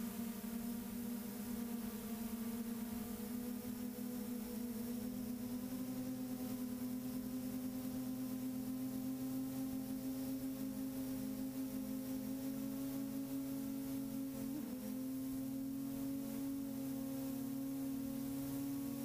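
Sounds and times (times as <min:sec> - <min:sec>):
drone propellers humming: 0:00.0 - 0:19.0.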